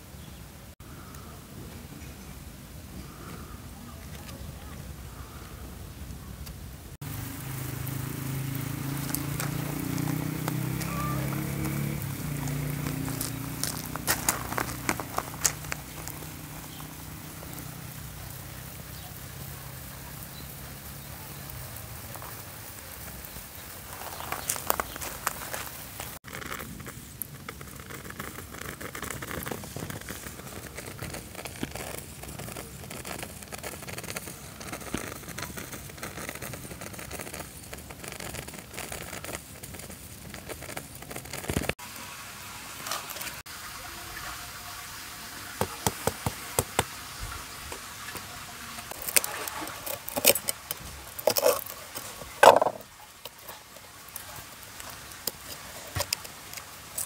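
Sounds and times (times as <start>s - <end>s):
steady hiss: 0.0s - 57.0s
light crackling: 0.9s - 41.8s, 45.5s - 57.0s
knife clicking and scraping on clay pot: 49.0s - 53.4s.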